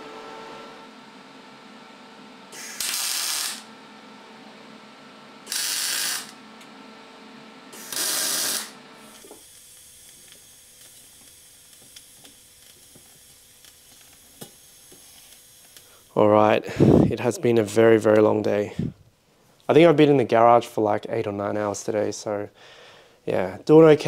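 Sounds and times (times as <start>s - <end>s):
loud bursts of hiss: 2.5s - 3.6s, 5.5s - 6.3s, 7.7s - 8.7s.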